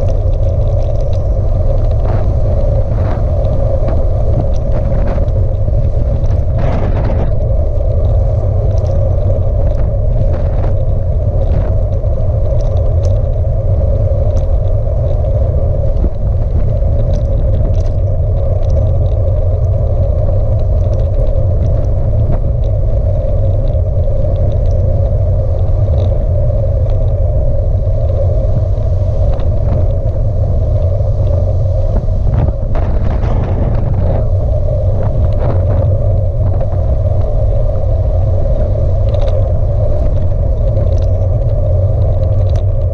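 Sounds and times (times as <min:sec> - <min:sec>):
faint ticks: 0:00.0 - 0:42.9
wind buffeting microphone: 0:00.0 - 0:42.9.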